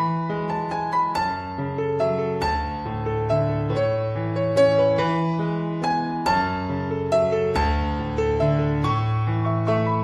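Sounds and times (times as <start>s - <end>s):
gentle piano music: 0.0s - 10.0s.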